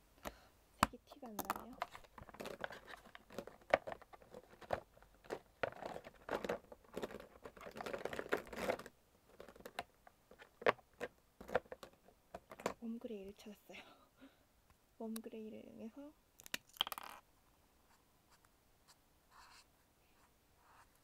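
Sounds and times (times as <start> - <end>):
rustling: 1.4 - 12.8.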